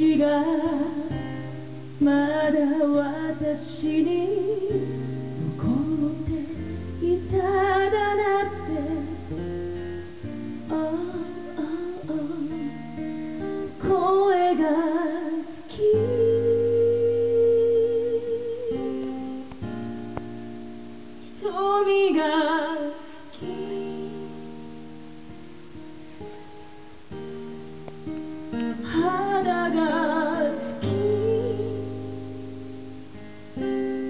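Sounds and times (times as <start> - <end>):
woman singing: 0.0 - 9.6, 10.2 - 19.6, 21.2 - 24.7, 28.5 - 32.4
acoustic guitar strumming: 0.0 - 34.0.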